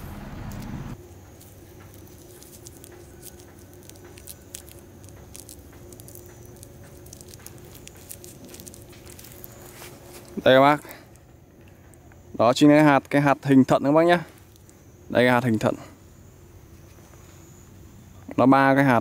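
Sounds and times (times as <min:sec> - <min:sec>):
fruit segments clicking and crackling: 0:00.5 - 0:15.8.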